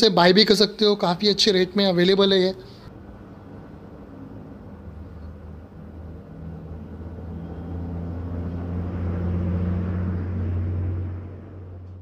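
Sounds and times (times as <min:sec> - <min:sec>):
low droning hum: 0:02.9 - 0:12.0.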